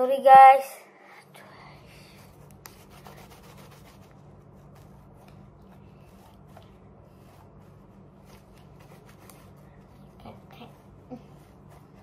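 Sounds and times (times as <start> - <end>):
steady low hum: 0.5 - 12.0.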